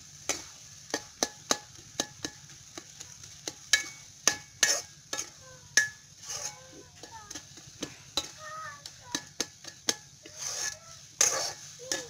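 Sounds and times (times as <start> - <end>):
faint sizzle: 0.0 - 12.0
metal ladle clinking in wok: 3.4 - 8.4.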